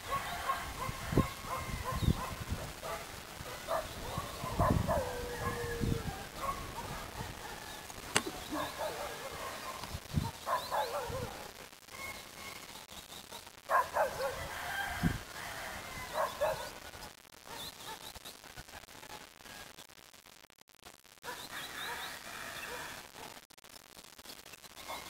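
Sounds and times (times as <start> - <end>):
dog barking: 0.0 - 11.5, 13.3 - 14.4, 16.1 - 16.8
sharp click: 7.9 - 8.6.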